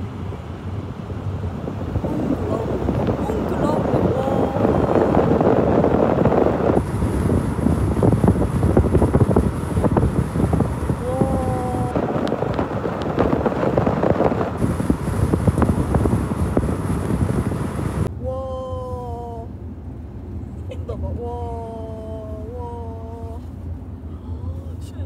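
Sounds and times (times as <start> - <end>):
wind buffeting microphone: 0.0 - 18.1
moving car rumble: 0.0 - 25.0.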